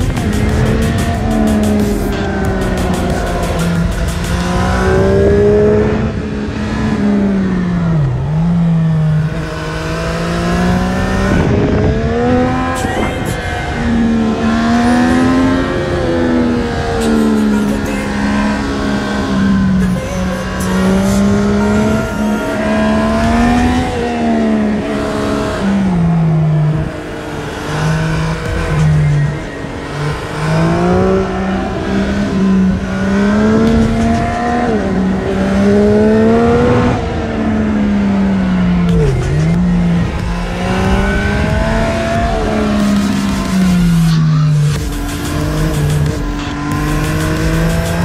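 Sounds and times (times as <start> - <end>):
wind noise: 0.0 - 17.4
motorcycle engine revving: 0.0 - 48.0.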